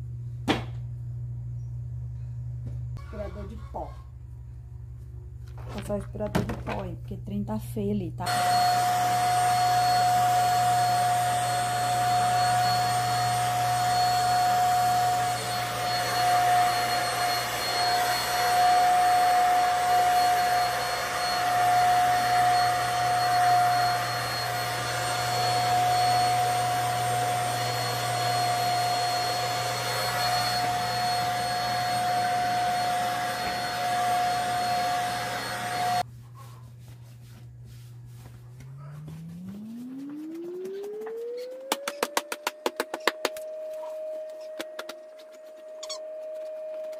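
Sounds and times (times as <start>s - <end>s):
vacuum cleaner motor whine: 8.2s - 36.0s, 39.1s - 46.9s.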